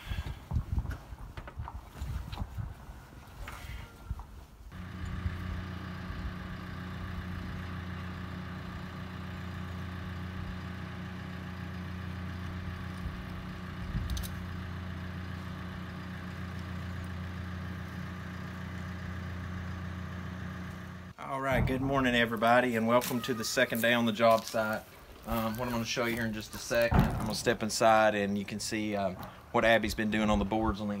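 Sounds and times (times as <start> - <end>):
engine idling: 4.7 - 23.2.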